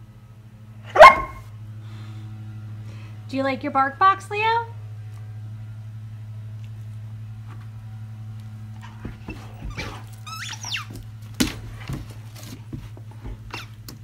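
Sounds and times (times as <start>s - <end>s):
steady low hum: 0.0s - 14.0s
paws on the floor: 8.7s - 14.0s
squeaky dog toy squeaking: 9.7s - 10.9s.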